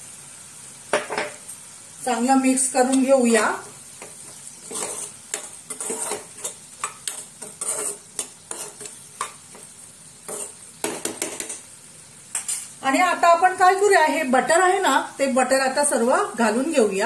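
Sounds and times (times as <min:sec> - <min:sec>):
food sizzling: 0:00.0 - 0:17.0
spoon scraping a pan: 0:02.6 - 0:11.7, 0:12.3 - 0:12.8.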